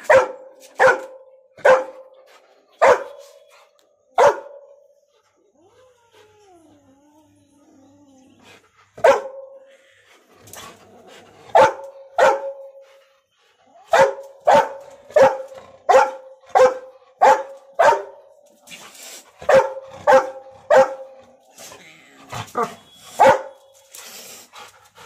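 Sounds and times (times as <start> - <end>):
dog barking: 0.0 - 2.1, 2.8 - 3.2, 4.2 - 4.8, 9.0 - 9.5, 11.5 - 12.8, 13.9 - 18.3, 19.4 - 21.2, 22.5 - 23.6.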